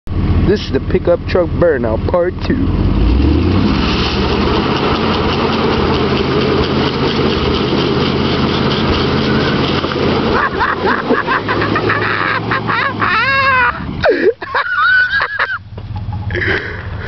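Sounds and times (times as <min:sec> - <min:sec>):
truck engine revving: 0:00.1 - 0:17.0
tyre spinning in burnout: 0:03.1 - 0:15.6
short tyre squeals: 0:03.6 - 0:10.3.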